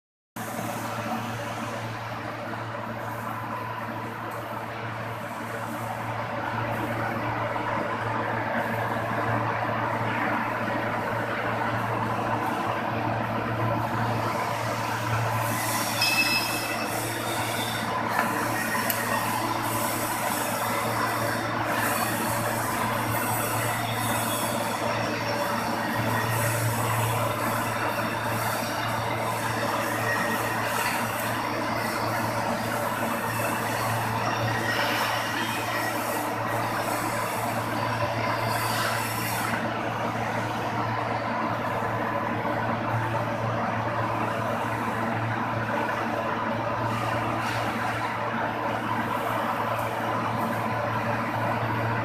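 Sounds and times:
workshop machinery hum: 0:00.4 - 0:52.0
high-pitched metallic squeal: 0:14.2 - 0:39.6.

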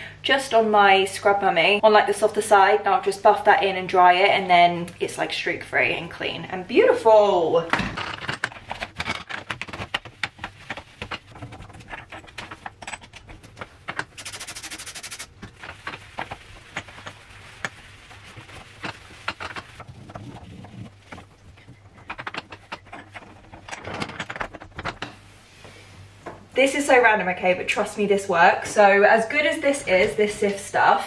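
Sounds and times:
sponge scrubbing metal hob: 0:09.6 - 0:23.7
cloth wiping steel: 0:14.2 - 0:21.6
small clicks and knocks: 0:18.8 - 0:25.2.

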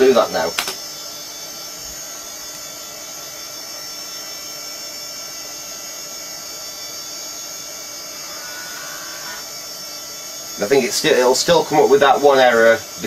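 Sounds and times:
computer cooling fan whirr: 0:00.0 - 0:13.0.

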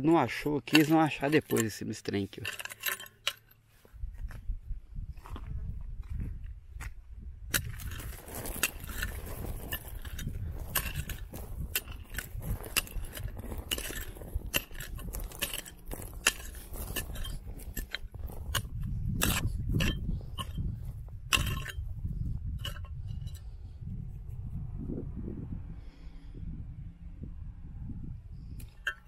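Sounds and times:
low rumble: 0:04.0 - 0:28.6
stones clicking together: 0:07.6 - 0:20.5.

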